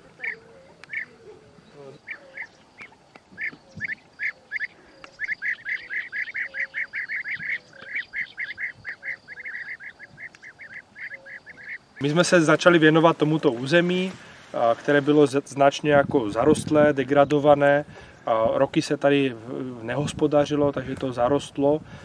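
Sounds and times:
waterfowl calling: 0.0s - 14.6s.

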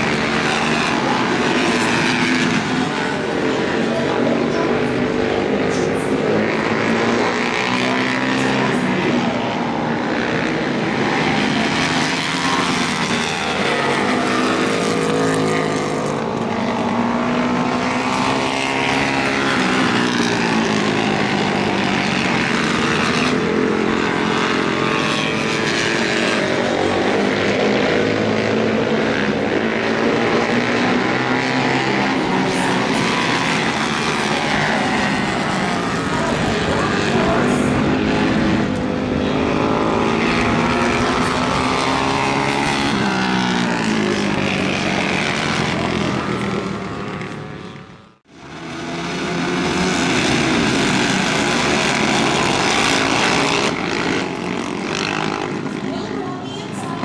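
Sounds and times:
racing motorcycle engines revving: 0.0s - 57.0s.

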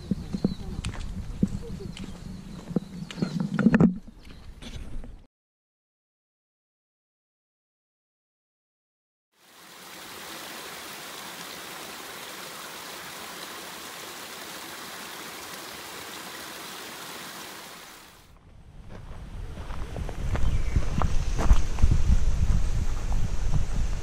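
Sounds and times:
small waterfall splashing: 9.4s - 18.3s.

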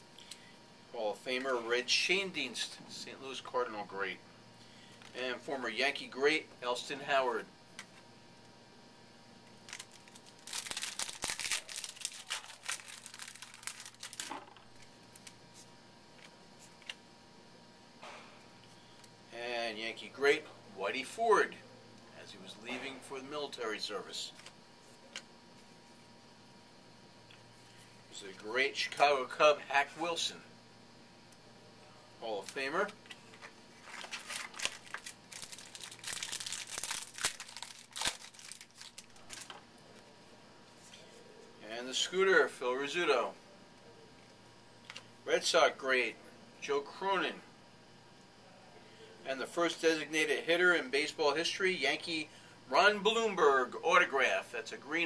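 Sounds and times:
wrapper crinkling and tearing: 9.6s - 15.4s, 33.8s - 39.6s.

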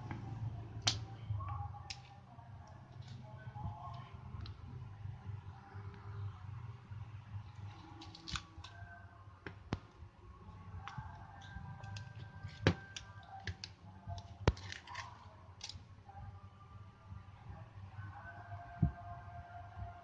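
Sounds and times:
plastic clips snapping: 7.9s - 8.8s, 10.8s - 15.8s.

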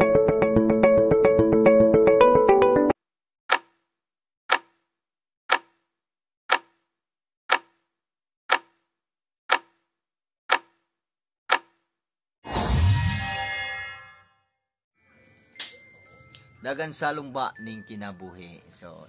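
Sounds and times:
clock ticking: 4.5s - 4.7s, 5.5s - 5.8s, 6.5s - 6.8s, 7.5s - 7.8s, 8.5s - 8.8s, 9.5s - 9.8s, 10.5s - 10.8s, 11.5s - 11.7s.

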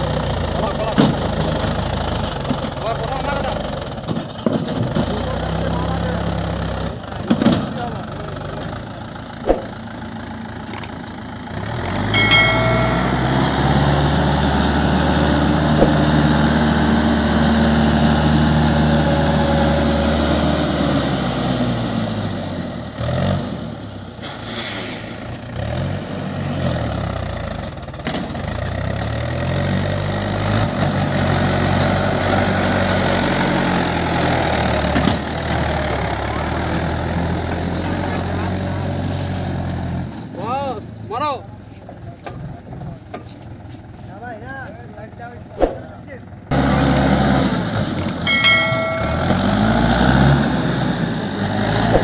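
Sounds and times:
tractor diesel engine running: 0.0s - 24.2s, 42.7s - 52.0s.

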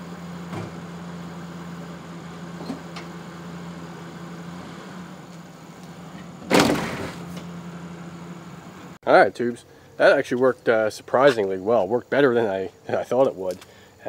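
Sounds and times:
pickup engine idling: 0.0s - 9.0s
loud bang: 6.5s - 7.4s.

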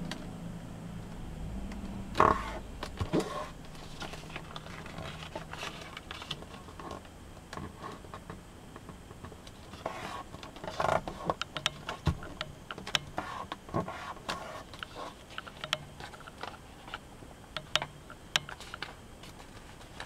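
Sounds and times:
paper rustling and crinkling: 2.9s - 7.0s.

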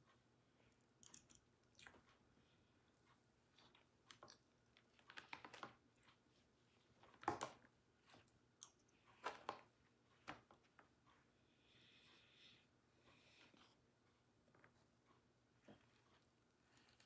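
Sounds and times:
plastic spoon clicking and scraping: 1.0s - 1.4s.

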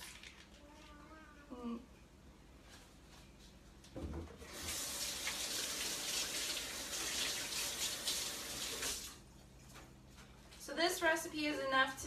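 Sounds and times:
faucet running water into sink: 4.5s - 9.1s.

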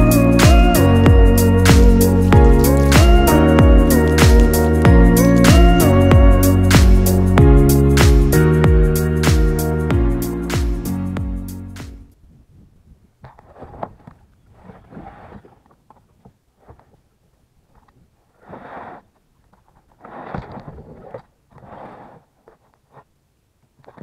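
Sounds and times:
kayak hull scraping and rustling: 13.2s - 17.1s, 17.7s - 23.1s.

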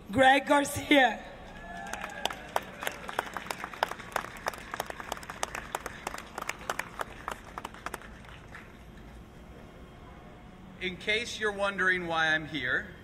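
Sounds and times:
audience applauding: 1.6s - 8.8s.

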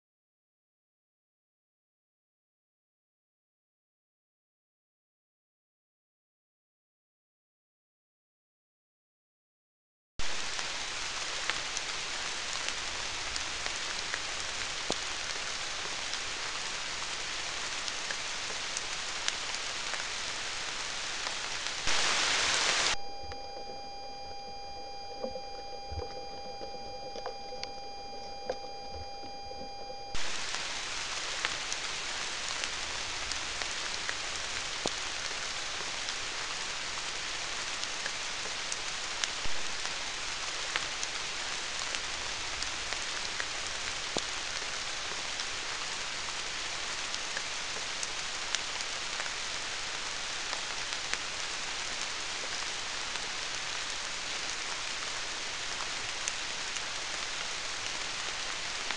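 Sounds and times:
loud raindrop: 10.2s - 23.0s, 30.2s - 58.9s
steady rain falling: 10.2s - 23.0s, 25.2s - 58.9s
faint high tones: 22.8s - 30.3s.

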